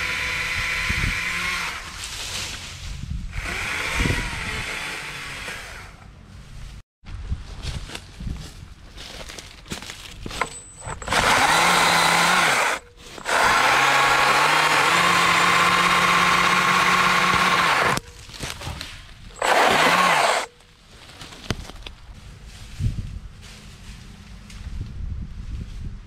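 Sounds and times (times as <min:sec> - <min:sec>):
battery chainsaw running: 0:03.4 - 0:05.7, 0:10.8 - 0:18.0, 0:19.4 - 0:20.5.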